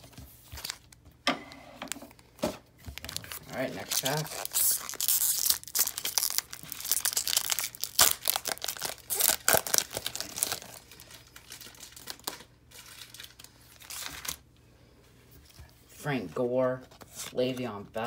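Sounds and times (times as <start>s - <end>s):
foil wrapper crinkling: 2.8s - 14.4s
foil wrapper tearing: 3.0s - 14.4s.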